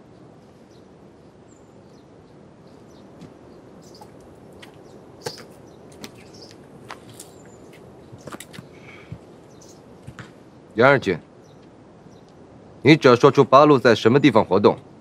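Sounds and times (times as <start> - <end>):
low background hiss: 0.0 - 15.0
faint high chirp: 3.8 - 4.1.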